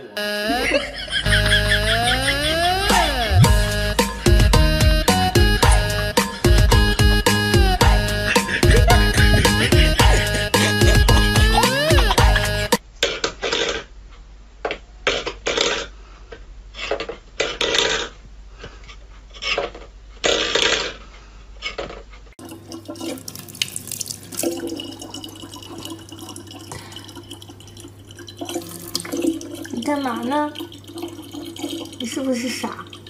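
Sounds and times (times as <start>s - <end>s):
tap water running into bottle: 22.4s - 33.0s.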